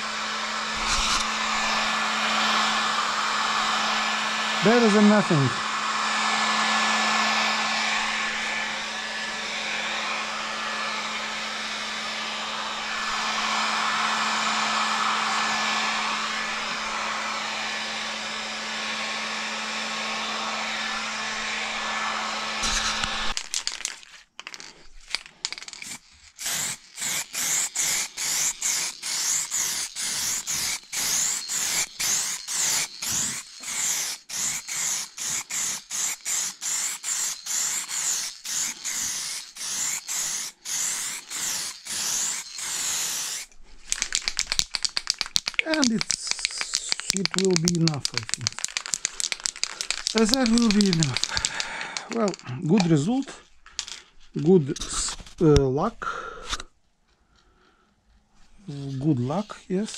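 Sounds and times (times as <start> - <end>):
hot-air blower humming: 0.0 - 23.4, 26.4 - 53.4
quick rubbing strokes: 0.7 - 1.9, 26.0 - 53.0.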